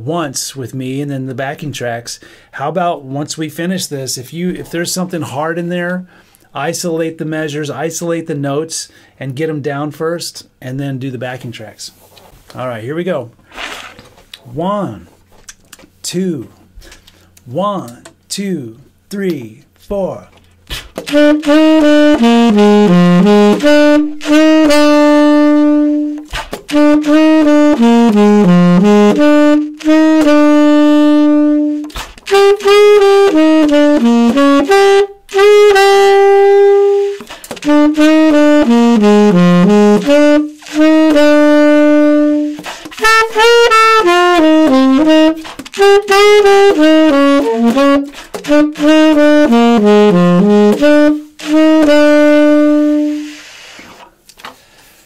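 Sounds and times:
solo saxophone blues: 0:19.9 - 0:54.1.

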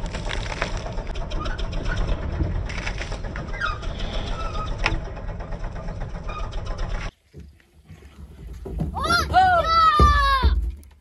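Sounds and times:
tractor diesel engine chugging: 0:00.0 - 0:07.1.

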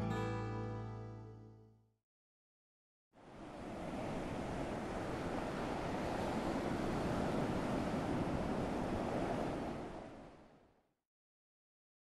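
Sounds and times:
ocean surf: 0:03.2 - 0:10.7.

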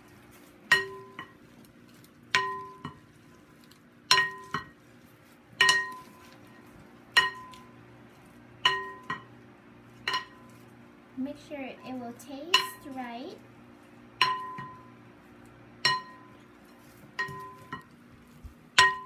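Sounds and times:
wooden spoons clinking glass bowl: 0:00.7 - 0:01.4, 0:02.0 - 0:04.8, 0:05.6 - 0:07.8, 0:08.6 - 0:09.4, 0:10.0 - 0:10.6, 0:12.5 - 0:13.0, 0:14.2 - 0:14.9, 0:15.8 - 0:18.0.

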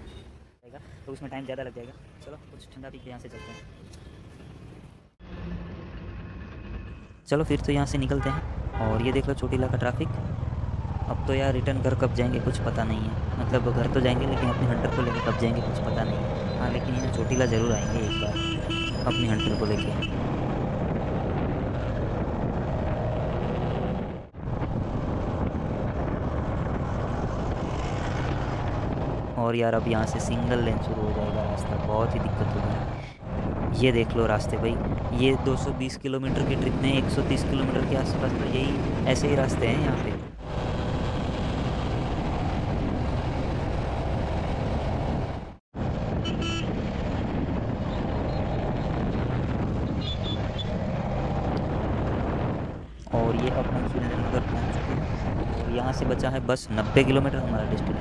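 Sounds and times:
road noise: 0:00.0 - 0:58.0
wind noise on microphone: 0:14.0 - 0:58.0
horn beep: 0:46.2 - 0:46.7.

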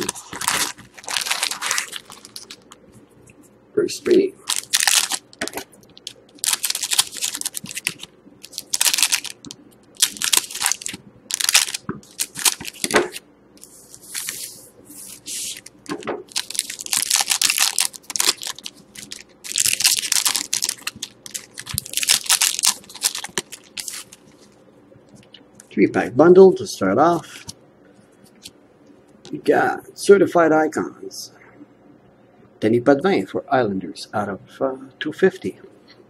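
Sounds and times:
foil wrappers crinkling and tearing: 0:00.0 - 0:02.8, 0:04.4 - 0:13.2, 0:16.3 - 0:24.6.

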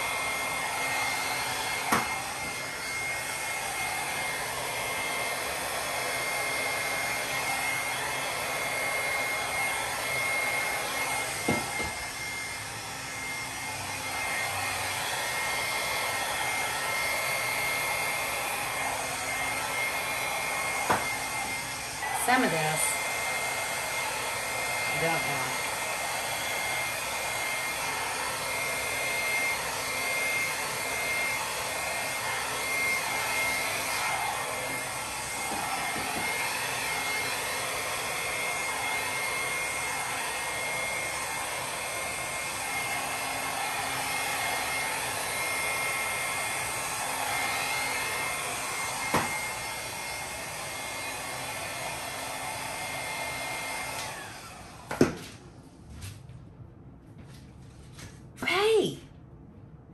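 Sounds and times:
hair dryer running: 0:00.0 - 0:55.4, 0:58.0 - 0:59.0.

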